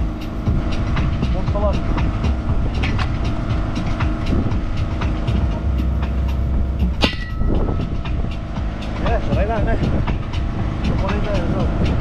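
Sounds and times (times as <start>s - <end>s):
low machine rumble: 0.0s - 12.0s
sharp metallic clink: 6.9s - 8.1s.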